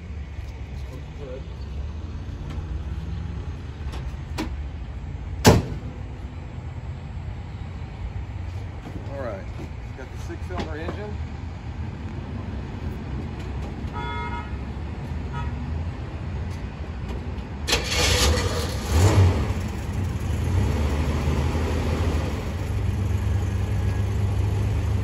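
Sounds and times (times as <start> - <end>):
car engine starting and idling: 16.5 - 25.0.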